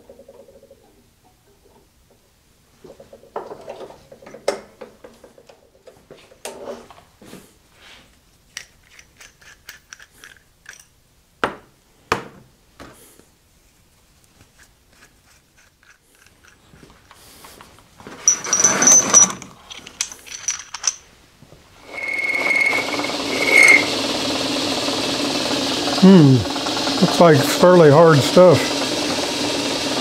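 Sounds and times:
metal tool holders clicking together: 8.6 - 10.9, 19.2 - 21.0.

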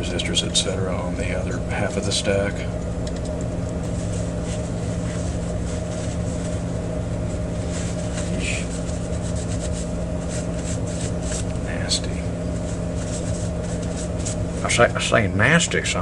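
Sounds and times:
steady low hum: 0.0 - 16.0
paper towel rustling: 3.7 - 15.5.

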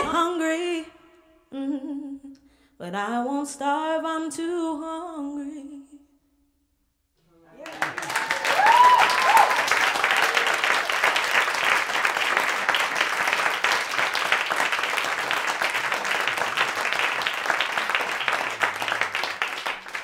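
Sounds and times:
audience applauding: 7.6 - 20.0.

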